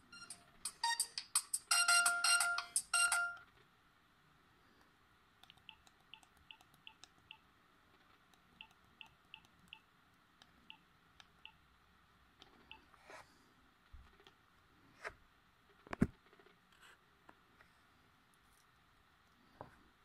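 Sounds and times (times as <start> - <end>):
phone ringtone: 0.1 - 3.4
phone key beeps and clicks: 5.4 - 7.4.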